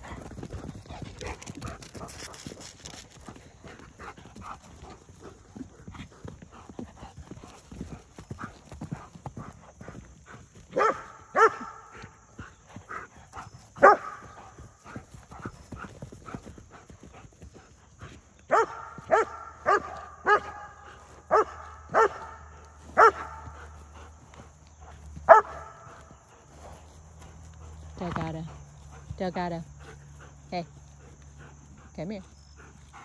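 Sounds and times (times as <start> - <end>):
faint horse hoofbeats: 0.0 - 33.0
dog barking: 10.8 - 12.0, 13.8 - 14.3, 18.5 - 23.8, 25.2 - 26.2.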